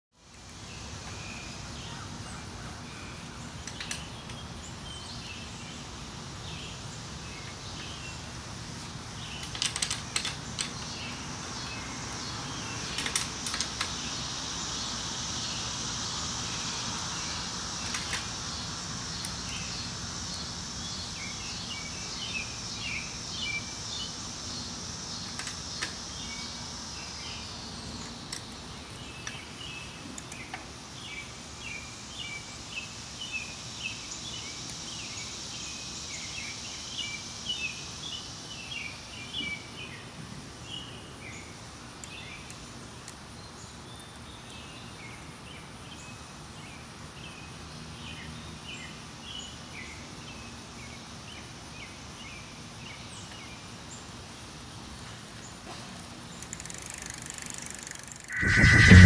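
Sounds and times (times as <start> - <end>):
high insect drone: 56.5 - 59.0.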